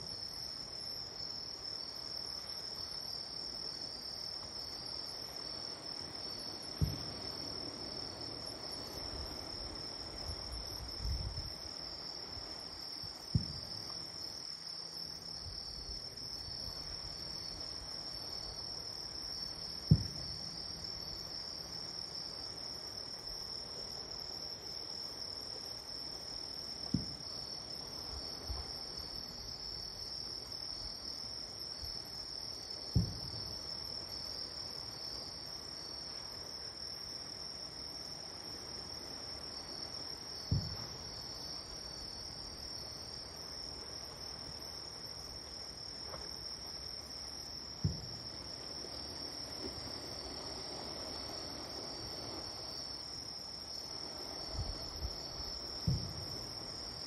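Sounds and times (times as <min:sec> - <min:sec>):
insect chorus: 0:00.0 - 0:57.0
distant fireworks booming: 0:06.7 - 0:07.6, 0:13.2 - 0:14.0, 0:19.8 - 0:20.7, 0:32.9 - 0:33.6, 0:40.4 - 0:41.2, 0:47.8 - 0:48.5, 0:54.6 - 0:56.6.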